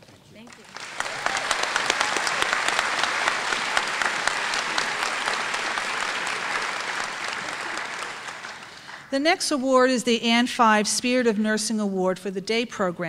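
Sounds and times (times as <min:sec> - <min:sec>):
audience applause: 0:00.4 - 0:09.2.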